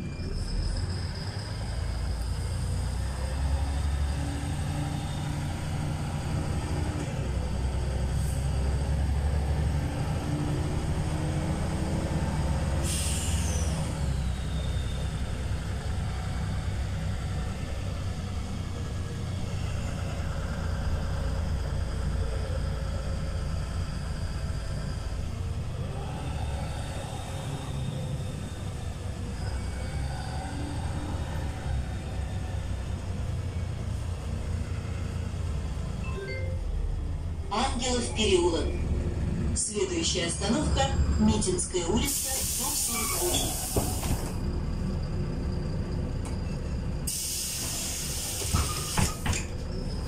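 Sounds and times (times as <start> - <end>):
bus engine running: 0.0 - 50.0
compressed air hiss: 42.0 - 44.3, 47.1 - 49.1.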